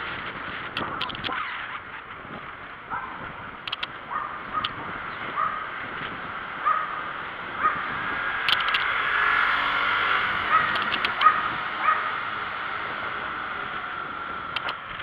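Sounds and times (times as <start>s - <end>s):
bicycle riding noise: 0.0s - 15.0s
sharp clicks: 0.7s - 1.4s, 3.6s - 4.0s, 4.6s - 4.8s, 8.4s - 8.9s, 10.7s - 11.4s, 14.5s - 15.0s.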